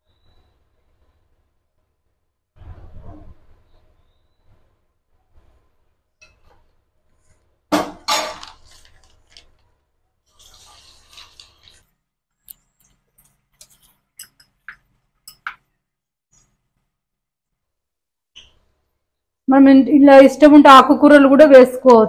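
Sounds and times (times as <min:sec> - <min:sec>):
batter sizzling in hot oil: 0:10.2 - 0:12.0.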